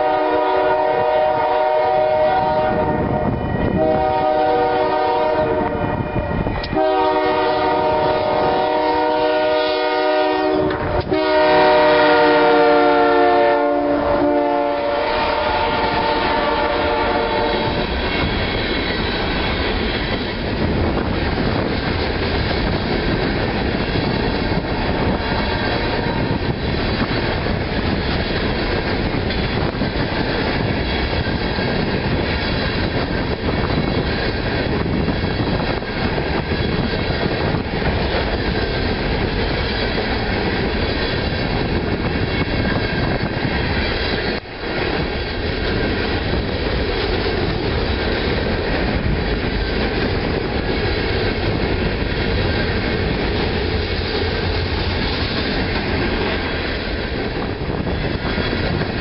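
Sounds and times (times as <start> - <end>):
freight train rolling past: 0.0 - 59.0
steel wheels rattling on rails: 14.3 - 59.0.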